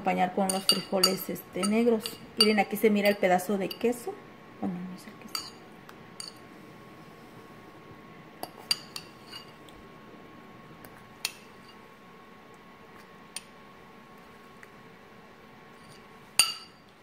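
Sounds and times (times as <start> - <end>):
metal fork clinking on ceramic bowl: 0.5 - 3.8, 5.3 - 5.6, 6.2 - 6.4.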